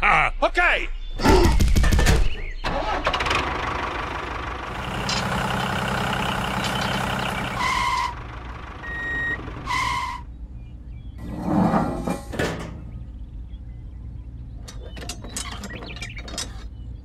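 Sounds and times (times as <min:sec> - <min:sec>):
tractor engine running: 0:02.6 - 0:11.2
two-tone horn beeps: 0:08.8 - 0:10.2.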